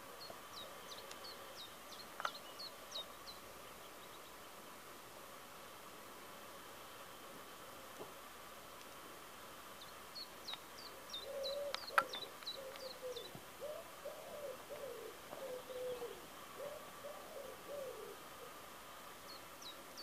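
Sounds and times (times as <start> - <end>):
small bird chirping: 0.1 - 4.8, 9.8 - 18.2
pigeon cooing: 11.2 - 18.6.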